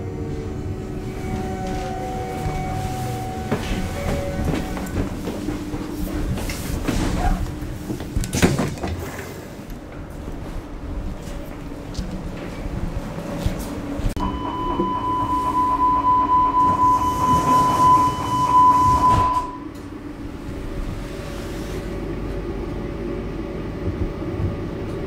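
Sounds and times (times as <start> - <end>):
train low hum: 0.0 - 25.0
pulsing door warning beeps: 14.2 - 19.7
train doors hissing shut: 18.7 - 19.6.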